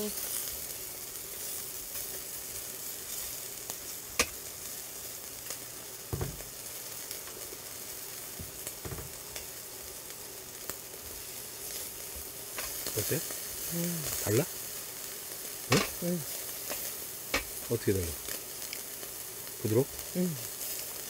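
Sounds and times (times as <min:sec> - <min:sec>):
beef sizzling on a grill: 0:00.0 - 0:21.0
soft knocks: 0:06.1 - 0:06.5, 0:08.8 - 0:09.1.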